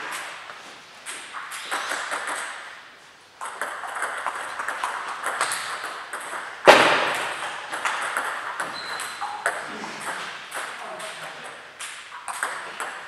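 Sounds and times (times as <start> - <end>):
table tennis balls clicking: 1.0 - 2.8, 3.4 - 13.0
loud sharp crack: 6.7 - 7.5.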